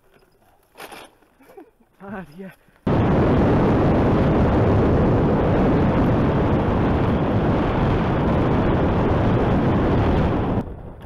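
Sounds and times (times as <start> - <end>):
wind buffeting microphone: 2.9 - 11.0.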